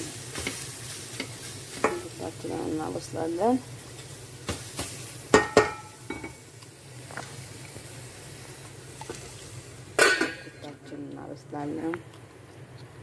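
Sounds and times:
metal cookware clanking: 1.2 - 2.2, 5.3 - 6.4, 10.0 - 11.0.

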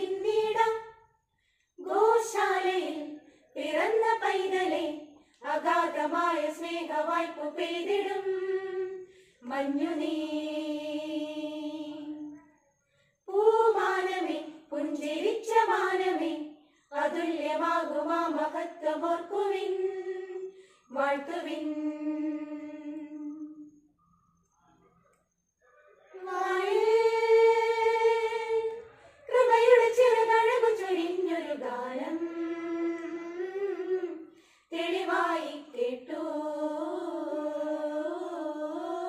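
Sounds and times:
women's choir singing a cappella: 0.0 - 1.1, 1.8 - 12.4, 13.2 - 23.8, 26.1 - 39.0.

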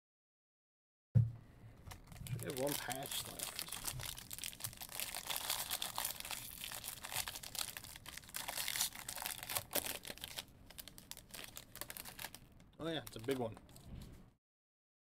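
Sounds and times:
wrapper crinkling and tearing: 1.9 - 13.6.

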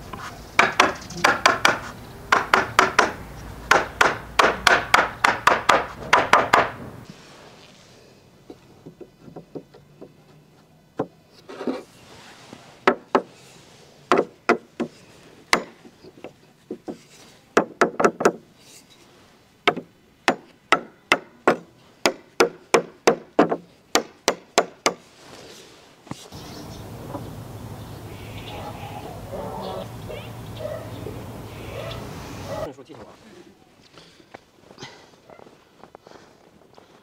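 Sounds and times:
hammer knocking on wood: 0.6 - 6.8, 17.6 - 18.4.

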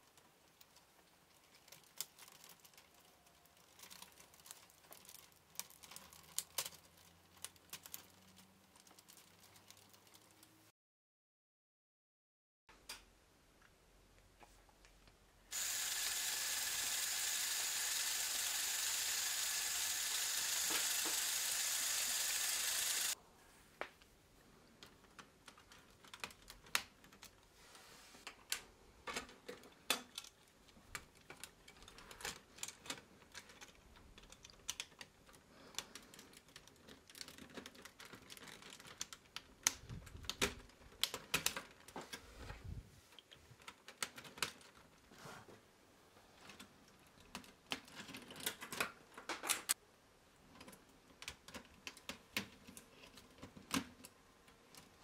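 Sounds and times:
plastic pieces clicking: 0.6 - 10.5, 28.5 - 41.8
electric motor and gears whirring: 15.5 - 23.2.

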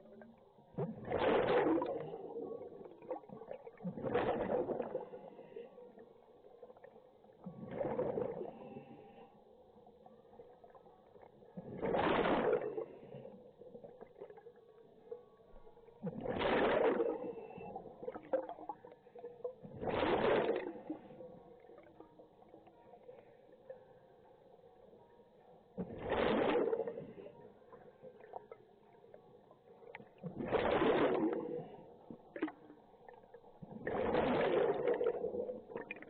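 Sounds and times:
diver exhaling bubbles underwater: 0.8 - 5.2, 7.5 - 8.6, 11.6 - 13.0, 16.0 - 18.7, 19.7 - 21.0, 30.2 - 31.8, 33.8 - 36.0.

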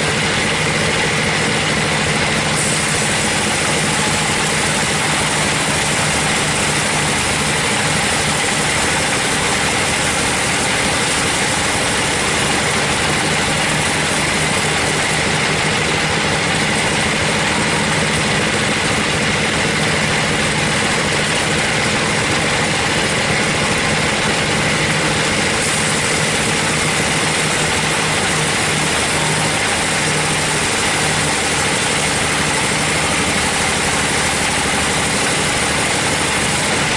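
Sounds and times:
engine hum: 0.0 - 36.9
band saw ripping through log: 24.6 - 36.9.

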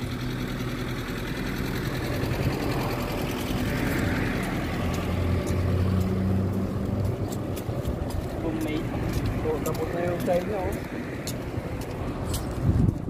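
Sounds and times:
street noise: 0.0 - 13.0
vehicle engine humming: 0.0 - 13.0.

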